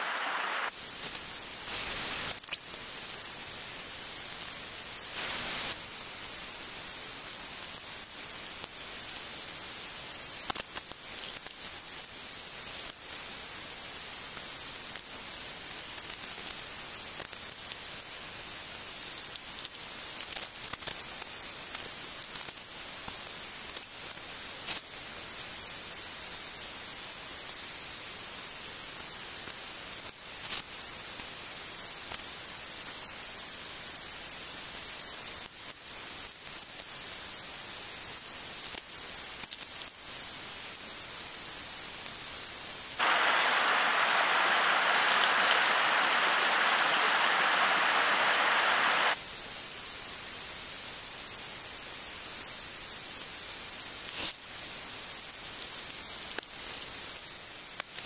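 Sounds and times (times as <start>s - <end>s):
short burst of noise: 0.0s - 0.7s, 43.0s - 49.2s
steady hiss: 0.0s - 58.0s.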